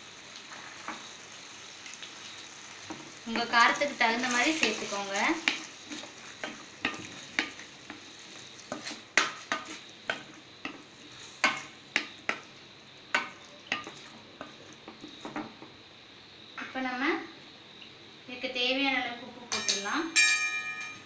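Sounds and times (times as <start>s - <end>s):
frying sizzle: 0.0s - 20.2s
spatula scraping metal pan: 2.9s - 12.5s.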